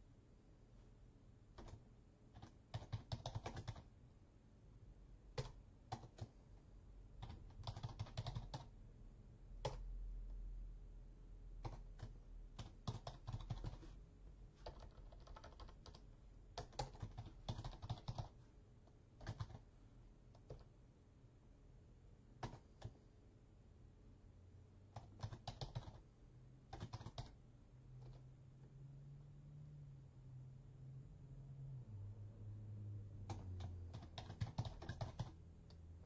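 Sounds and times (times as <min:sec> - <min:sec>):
typing on computer keyboard: 0:01.6 - 0:03.9, 0:05.3 - 0:06.4, 0:07.2 - 0:08.7, 0:09.6 - 0:09.9, 0:11.6 - 0:13.9, 0:14.6 - 0:18.4, 0:19.2 - 0:19.7, 0:20.3 - 0:20.7, 0:22.4 - 0:23.0, 0:24.9 - 0:26.0, 0:26.7 - 0:27.4, 0:28.0 - 0:28.2, 0:33.2 - 0:35.8.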